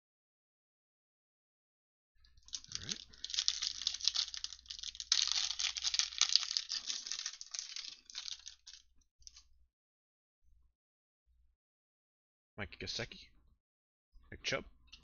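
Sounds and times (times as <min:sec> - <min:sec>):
foil wrapper crinkling: 0:02.5 - 0:09.4.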